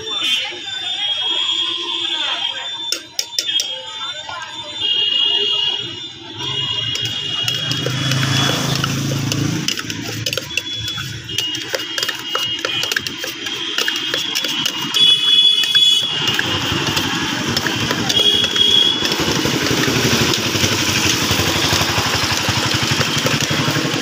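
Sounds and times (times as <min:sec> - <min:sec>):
street traffic: 0:00.0 - 0:24.0
high steady tone: 0:05.8 - 0:23.2
metal can clicking and rattling: 0:06.8 - 0:24.0
engine running: 0:06.9 - 0:15.0, 0:16.1 - 0:24.0.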